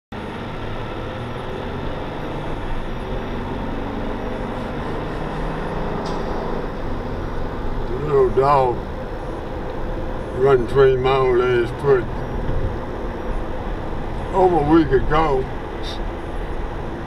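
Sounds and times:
car engine accelerating: 0.1 - 17.0
road noise inside car: 0.1 - 17.0.

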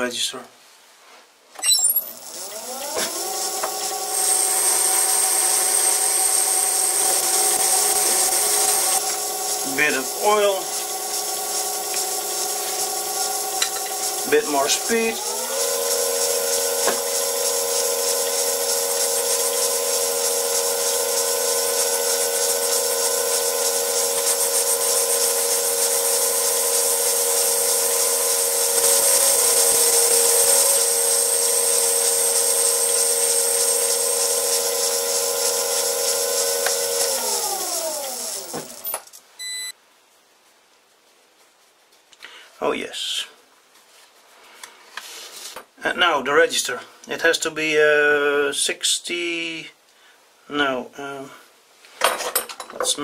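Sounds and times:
lathe spinning down: 1.9 - 38.9
metal lathe motor whine: 1.9 - 38.9
hiss of cutting tool: 5.6 - 38.6.

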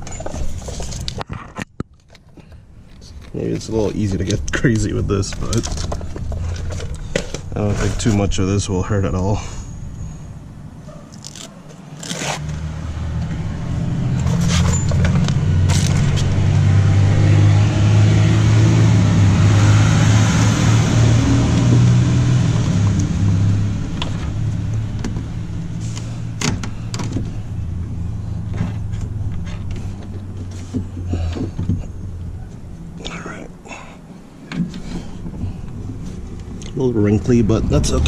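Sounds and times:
clicks and rustles of handling wire: 0.0 - 8.3
vehicle passing by: 12.2 - 31.4, 36.0 - 38.0.

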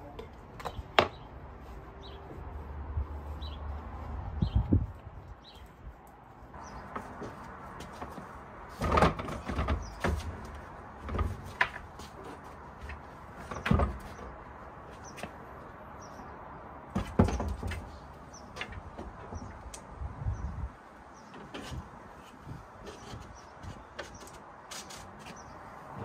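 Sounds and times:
plywood panels knocking and scraping: 6.6 - 14.4, 16.9 - 19.9, 21.2 - 25.4
wooden thuds: 6.8 - 12.2, 16.9 - 17.9.

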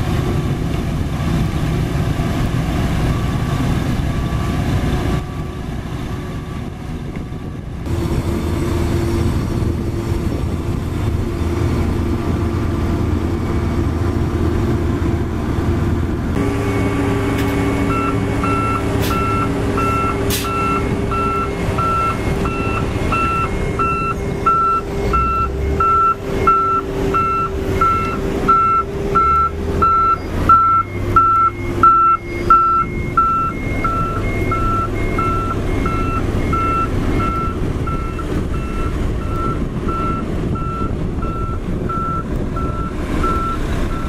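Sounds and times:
diesel engine running: 0.0 - 44.0
truck reversing alarm beeping: 16.4 - 44.0.

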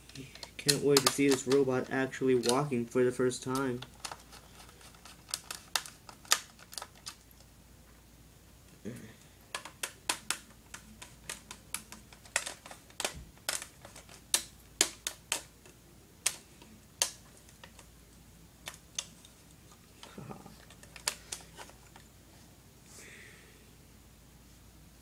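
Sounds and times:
plastic toy parts clicking: 0.1 - 1.6, 3.5 - 7.2, 9.5 - 16.4.

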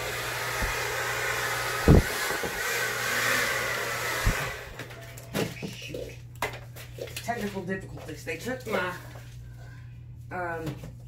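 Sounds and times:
hair dryer blowing: 0.0 - 5.0.

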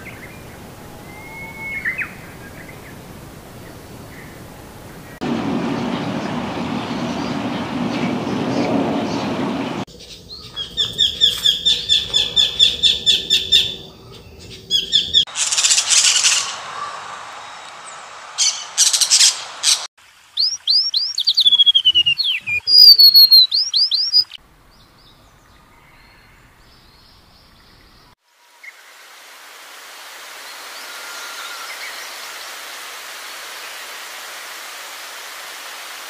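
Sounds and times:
bird whistles slurring downward: 0.1 - 2.7, 20.4 - 24.4
harsh bird squawking: 20.4 - 24.4
bird chirps: 20.4 - 28.1.

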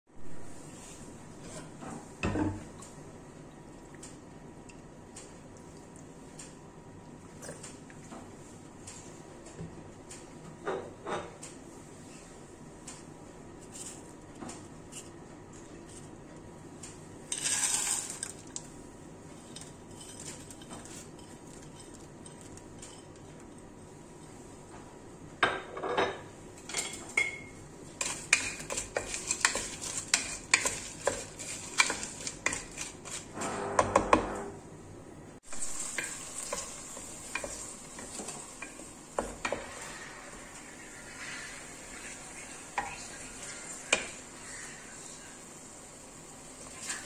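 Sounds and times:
wooden spoon scraping clay pot: 28.0 - 33.8
vegetables sizzling in oil: 35.4 - 47.0.

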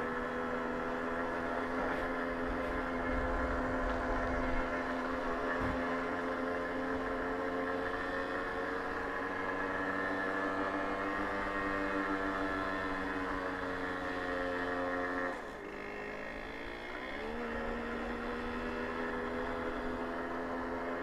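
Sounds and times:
moped engine running under load: 0.0 - 21.0.

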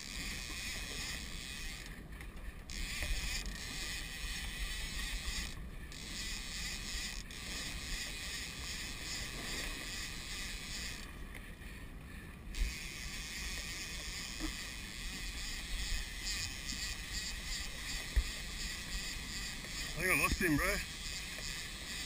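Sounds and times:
outboard motor rumble: 0.0 - 22.0
wind: 0.0 - 22.0.

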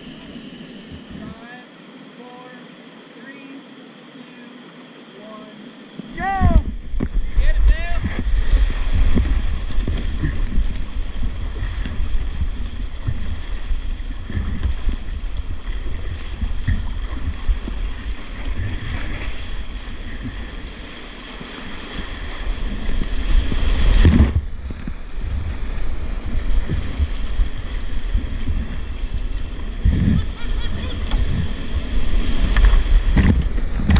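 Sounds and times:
paddle splashes: 4.2 - 33.9
wind buffeting microphone: 6.0 - 33.9.

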